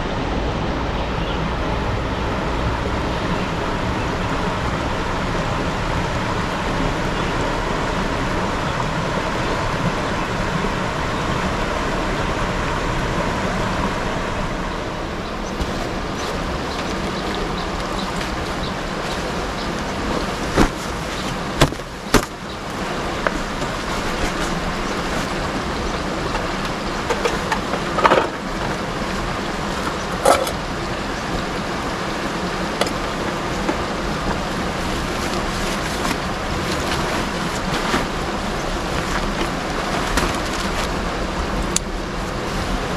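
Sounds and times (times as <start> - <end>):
river rushing over rocks: 0.0 - 42.9
camp gear knocks: 20.5 - 22.4.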